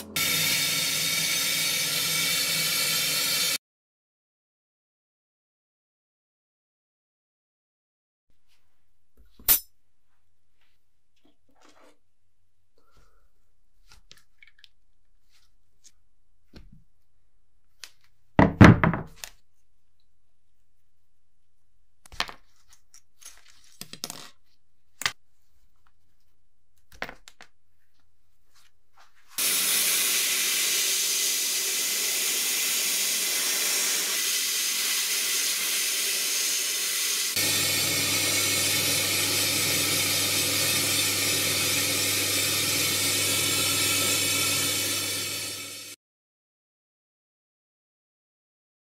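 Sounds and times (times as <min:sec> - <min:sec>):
sandblaster hissing: 0:29.4 - 0:46.0
spray gun low hum: 0:29.4 - 0:46.0.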